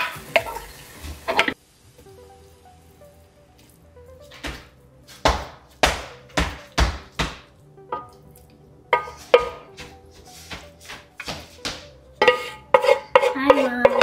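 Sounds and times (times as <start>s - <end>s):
faint background music: 0.0s - 14.0s
cooking utensil knocking: 8.9s - 9.7s, 12.2s - 14.0s.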